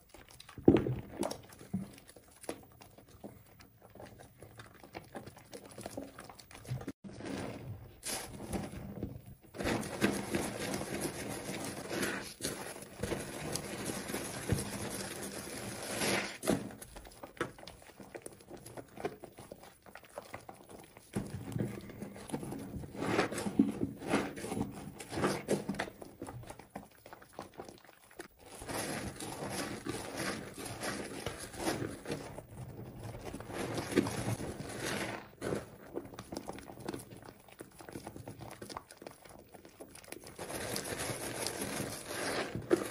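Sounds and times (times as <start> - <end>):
foam bubbles popping: 0.0 - 7.0
wet soap squelching: 0.0 - 42.9.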